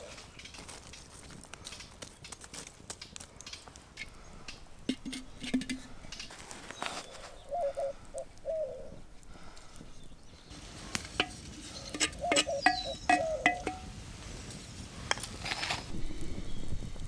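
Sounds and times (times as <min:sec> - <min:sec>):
bird calling: 0:04.0 - 0:13.9
wooden spoon knocking clay pot: 0:04.8 - 0:06.2, 0:11.0 - 0:13.9.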